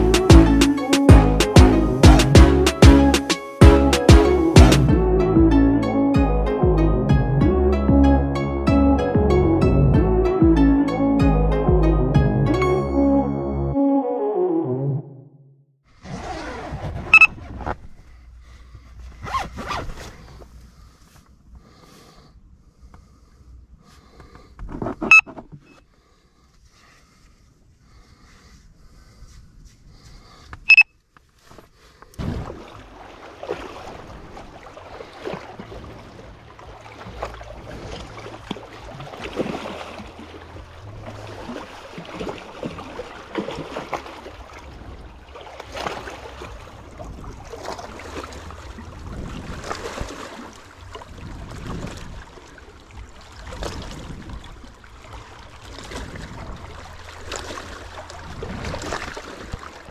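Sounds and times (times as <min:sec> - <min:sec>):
water splashing and sloshing: 0:00.0 - 0:05.0, 0:15.9 - 0:22.1, 0:23.8 - 0:59.9.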